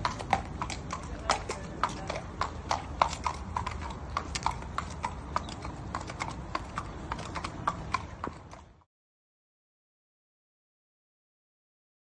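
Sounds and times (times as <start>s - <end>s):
hoofbeats on wet concrete: 0.0s - 8.8s.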